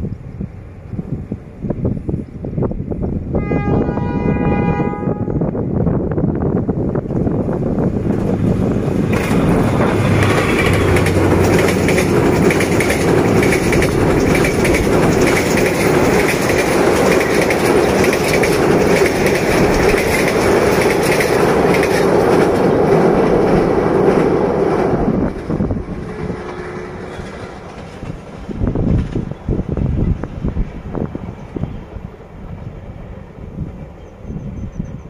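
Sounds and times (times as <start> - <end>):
train rumbling over bridge: 0.0 - 35.0
wheels clacking over rail joints: 7.0 - 29.6.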